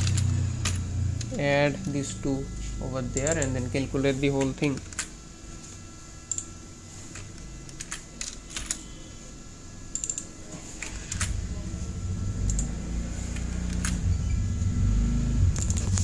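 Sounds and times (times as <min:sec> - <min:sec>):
keyboard typing: 0:09.9 - 0:11.4, 0:15.5 - 0:16.0
low rumble: 0:11.1 - 0:16.0.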